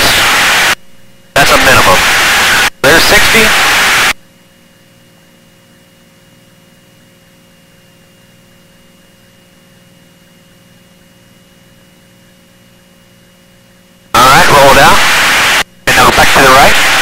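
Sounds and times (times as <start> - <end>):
intercom hiss and hum: 0.0 - 4.2, 14.1 - 17.0.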